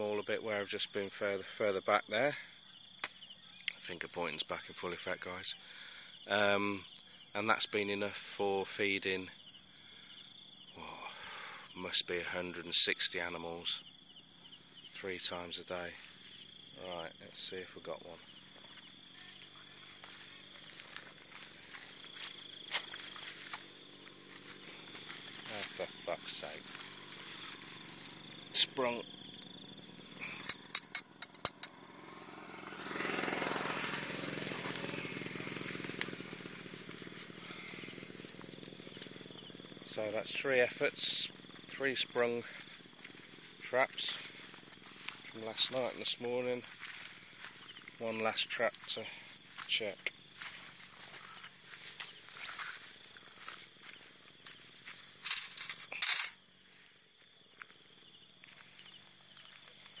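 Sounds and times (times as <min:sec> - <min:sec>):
grass rustling underfoot: 0:18.2 - 0:28.8, 0:34.1 - 1:00.0
small engine humming: 0:18.2 - 0:39.9
metal rat trap clicking and rattling: 0:30.3 - 0:31.8, 0:55.2 - 0:56.4.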